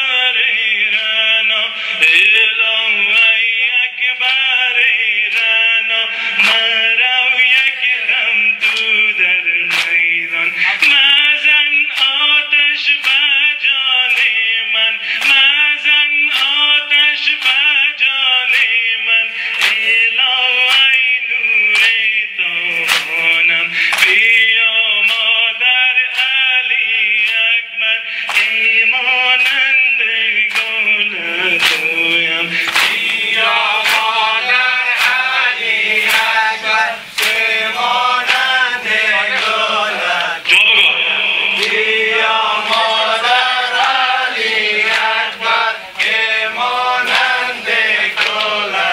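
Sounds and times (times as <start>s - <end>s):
men chanting a lament: 0.0s - 48.9s
chest beating slaps: 31.6s - 34.2s.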